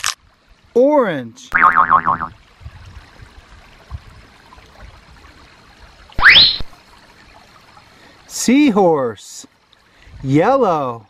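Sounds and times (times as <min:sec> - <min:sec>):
stream trickling over rocks: 0:00.0 - 0:11.0
rising whistle sound effect: 0:06.2 - 0:06.7.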